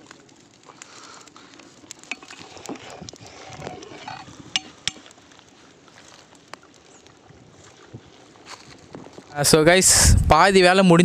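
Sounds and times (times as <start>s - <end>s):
metal ladle scraping cooking pot: 2.1s - 5.0s.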